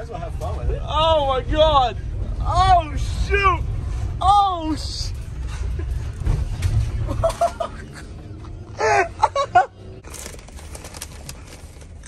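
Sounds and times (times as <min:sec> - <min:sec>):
van engine rumble: 0:00.0 - 0:12.0
snack bag crinkling: 0:10.0 - 0:12.0.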